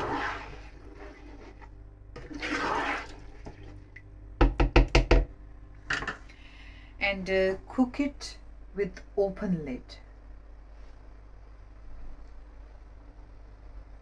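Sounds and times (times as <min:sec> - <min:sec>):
spatula stirring rice in wok: 0:00.0 - 0:01.7
spatula tapping on pan: 0:04.4 - 0:05.3.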